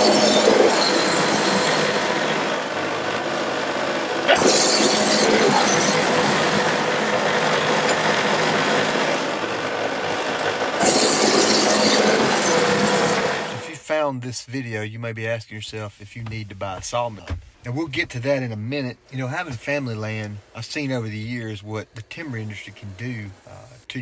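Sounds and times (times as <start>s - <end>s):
band sawmill sawing log: 4.3s - 8.7s, 10.8s - 13.6s.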